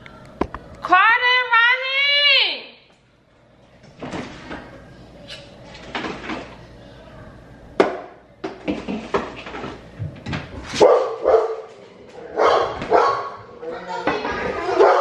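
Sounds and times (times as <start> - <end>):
kitchen knocks and clatter: 5.8 - 6.6, 7.8 - 10.8.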